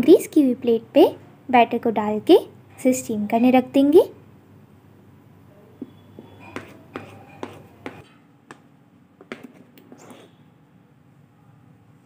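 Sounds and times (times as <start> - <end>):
spoon knocking against bowl: 5.8 - 8.6
batter being stirred: 5.8 - 10.4.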